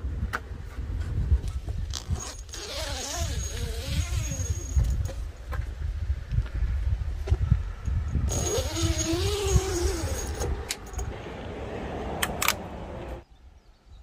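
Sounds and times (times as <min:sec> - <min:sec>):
zipper rasping: 0:01.9 - 0:04.8, 0:08.3 - 0:10.5.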